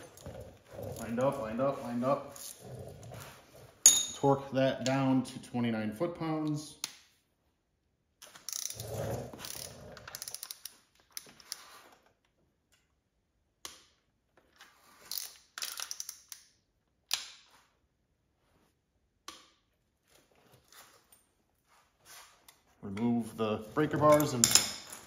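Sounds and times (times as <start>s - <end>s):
ratchet wrench clicking: 8.5s - 8.8s, 9.4s - 10.7s, 15.1s - 16.4s.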